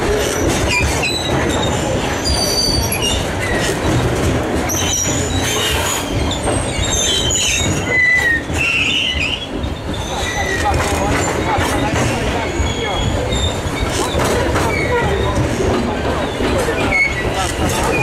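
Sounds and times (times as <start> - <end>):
steel wheels rumbling on rails: 0.0 - 18.0
high-pitched wheel squeals: 4.7 - 11.4, 12.3 - 15.4.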